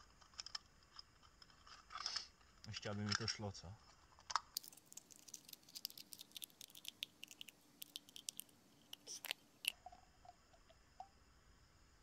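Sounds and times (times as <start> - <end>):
aluminium can crinkling and clicking: 4.2 - 10.8
faint hiss: 4.6 - 12.0.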